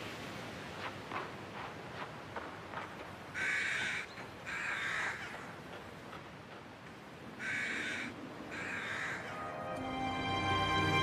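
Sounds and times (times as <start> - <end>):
crow cawing: 3.4 - 5.5, 7.4 - 9.4.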